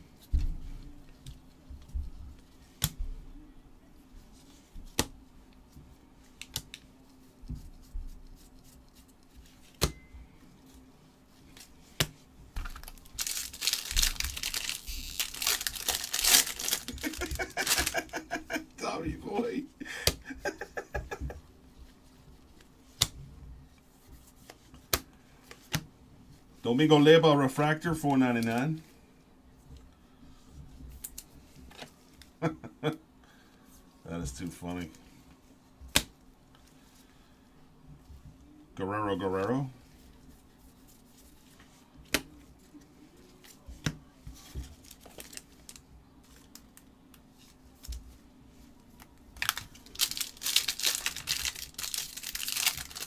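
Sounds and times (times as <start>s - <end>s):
faint steady hum: 0.0s - 53.0s
cards clicking while flipped: 6.4s - 6.9s.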